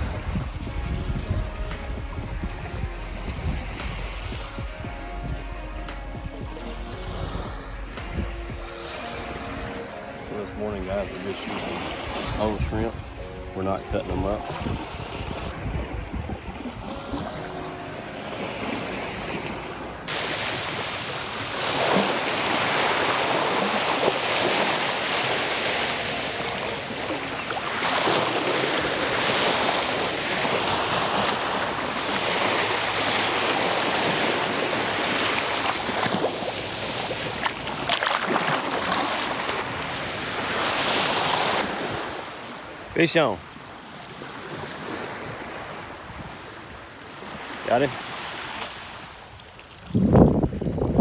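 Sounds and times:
wind on microphone: 0.0s - 17.8s, 44.4s - 47.5s, 49.0s - 51.0s
small waves breaking on sand: 0.0s - 51.0s.

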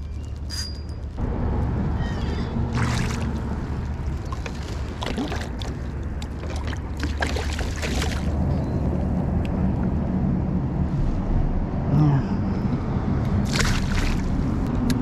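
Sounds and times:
wind rumble on microphone: 0.0s - 15.0s
water splashing around kayak: 2.7s - 8.5s, 13.4s - 14.6s.

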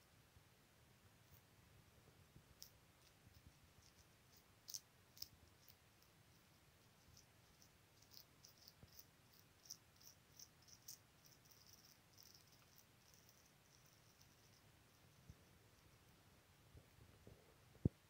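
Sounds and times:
guinea pig chewing greens: 2.5s - 15.8s.

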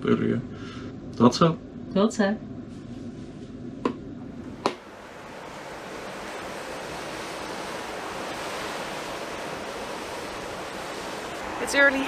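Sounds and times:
seawater rushing along hull: 4.5s - 12.0s
wind on microphone: 5.3s - 12.0s.

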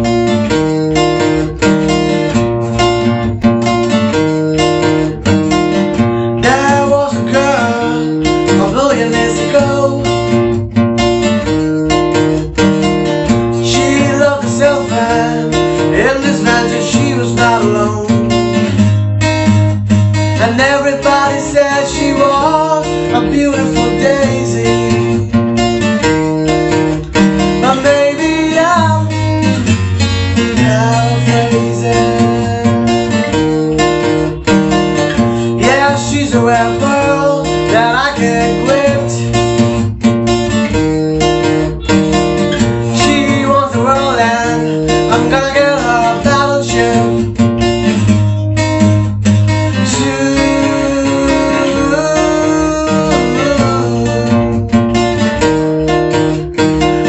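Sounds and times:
acoustic guitar strumming: 0.0s - 57.0s
men singing: 6.4s - 10.3s, 13.6s - 18.5s, 20.4s - 25.4s, 27.6s - 29.6s, 30.5s - 33.4s, 35.3s - 39.4s, 42.8s - 47.3s, 49.8s - 54.8s.

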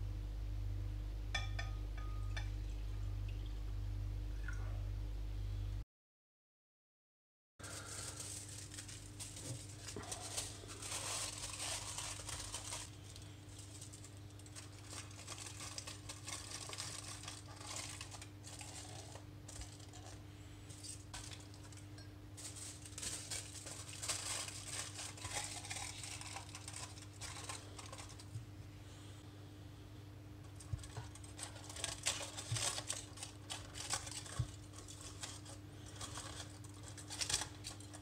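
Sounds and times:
steady low hum: 0.0s - 5.8s, 7.6s - 38.0s
aluminium foil crinkling: 7.6s - 28.4s, 30.4s - 38.0s.

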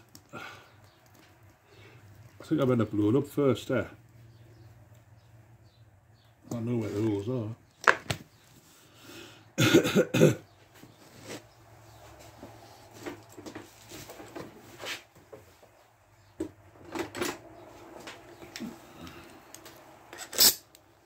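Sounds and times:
man coughing: 9.6s - 10.5s
knocks and rattles of handling: 12.2s - 18.8s.

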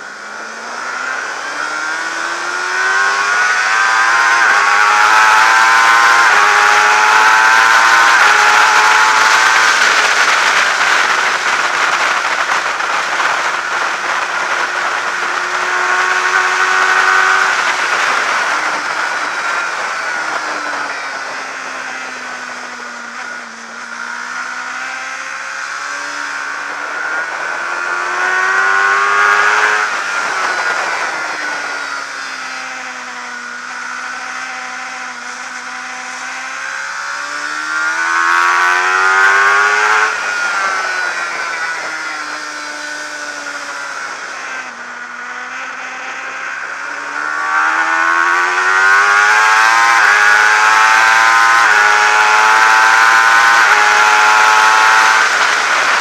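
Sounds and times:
racing motorcycle engine: 0.0s - 56.0s
wind rush on microphone: 1.4s - 24.0s, 25.6s - 33.4s, 46.6s - 56.0s.

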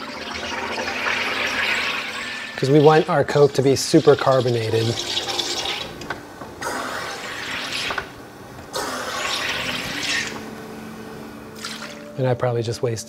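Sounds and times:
gas hissing into bottle: 0.8s - 3.1s, 6.6s - 8.1s, 8.7s - 10.5s.

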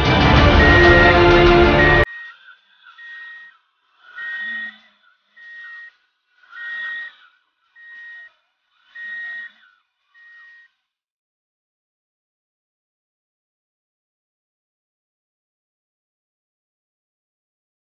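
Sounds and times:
electronic reversing beeper: 0.5s - 3.5s, 4.1s - 4.8s, 5.4s - 6.0s, 6.6s - 7.2s, 7.8s - 8.3s, 9.0s - 9.6s.

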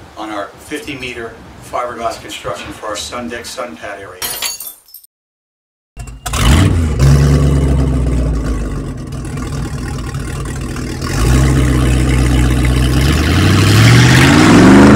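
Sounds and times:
large engine running: 6.0s - 14.9s.

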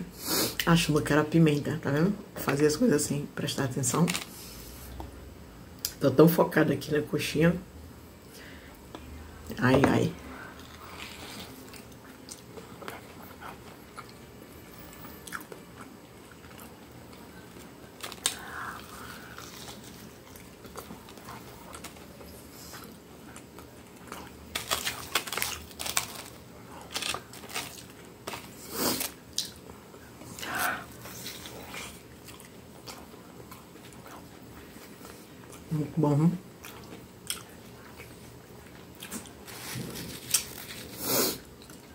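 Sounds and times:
person chewing crunchy food: 10.5s - 29.7s, 30.3s - 35.7s, 36.6s - 41.9s.

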